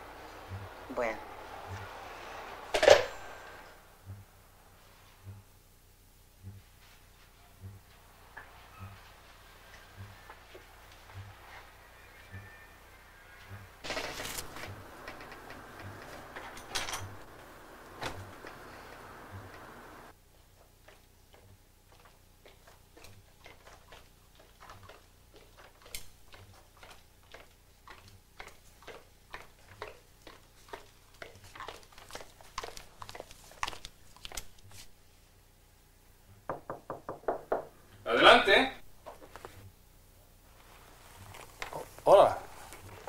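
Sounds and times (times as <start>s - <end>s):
paper rustling: 13.8s - 15.1s.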